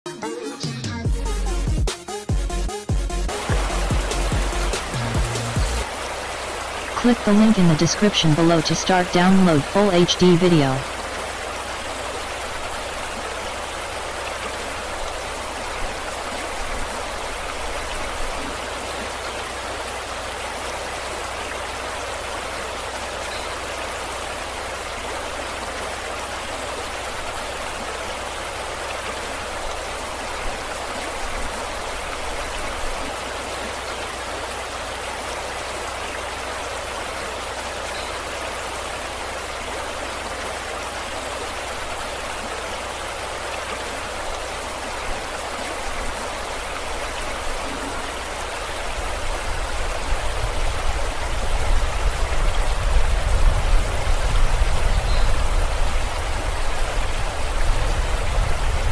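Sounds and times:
water rushing: 0:05.8 - 0:54.2.

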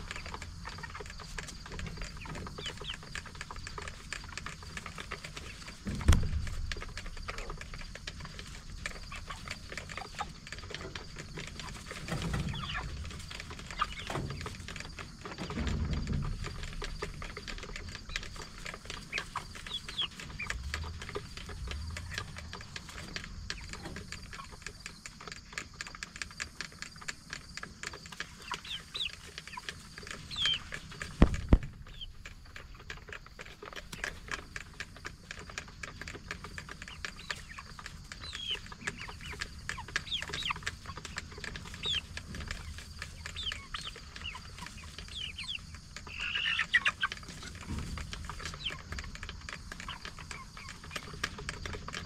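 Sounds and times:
chickens peeping and clucking: 0:00.0 - 0:52.0
sharp knocks: 0:05.8 - 0:06.9.

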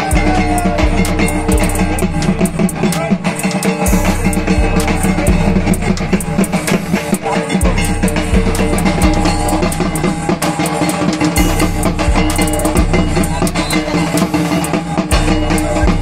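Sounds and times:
sustained low bass notes: 0:00.0 - 0:03.3, 0:03.9 - 0:07.0, 0:07.6 - 0:10.4, 0:11.4 - 0:14.1
loud music with fast drum beat: 0:00.0 - 0:16.0.

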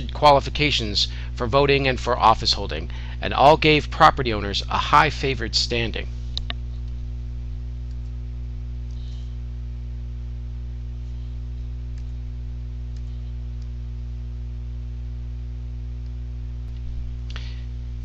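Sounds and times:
low electrical hum: 0:00.0 - 0:18.0
faint clicks: 0:06.3 - 0:07.0.

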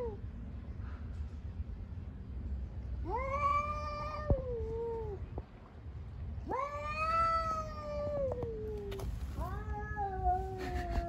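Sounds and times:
cat yowling: 0:06.4 - 0:08.6, 0:09.4 - 0:11.0.

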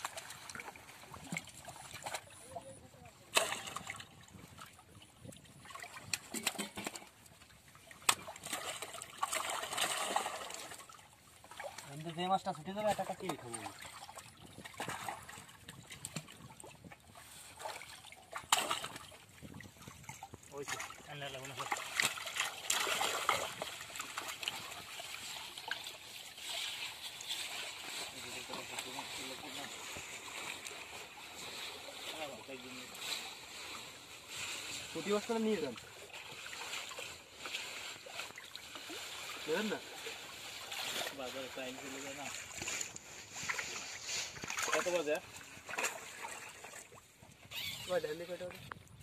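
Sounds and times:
water splashing and sloshing: 0:00.0 - 0:49.0.

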